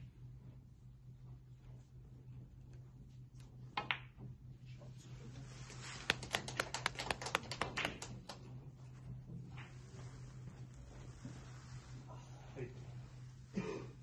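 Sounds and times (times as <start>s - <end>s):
snooker balls clicking: 3.3s - 4.4s, 5.9s - 8.5s
spectators applauding: 6.0s - 8.4s.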